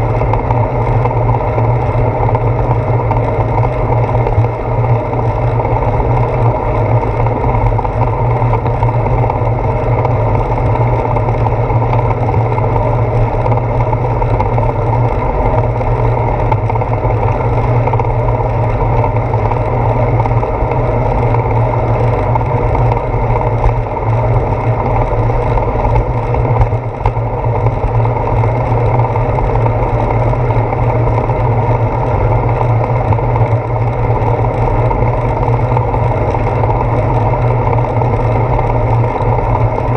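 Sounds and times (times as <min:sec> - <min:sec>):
bicycle road vibration on wet pavement: 0:00.0 - 0:39.9.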